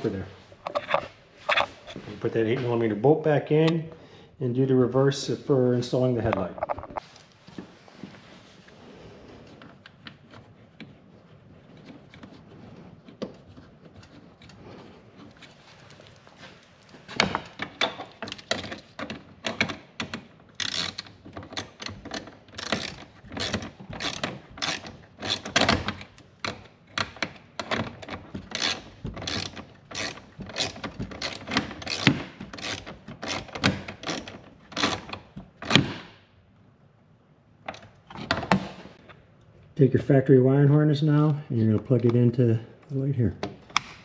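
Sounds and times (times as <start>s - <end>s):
hand ratchet clicking: 19.4s - 35.8s.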